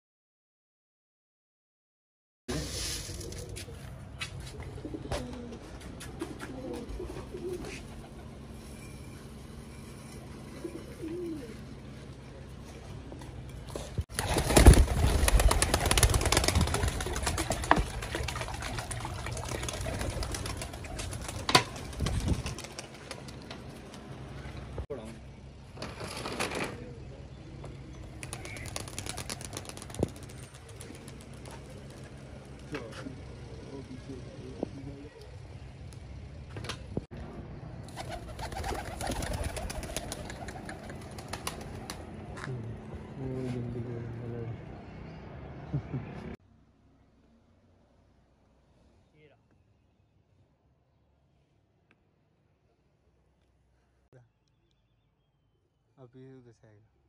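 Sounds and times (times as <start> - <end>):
pigeon wing flaps: 3.0 - 8.2, 13.9 - 24.1, 28.2 - 32.7, 37.9 - 42.1
pigeons cooing: 4.5 - 8.3, 10.5 - 11.7, 15.3 - 21.9, 28.2 - 29.9, 37.9 - 41.9.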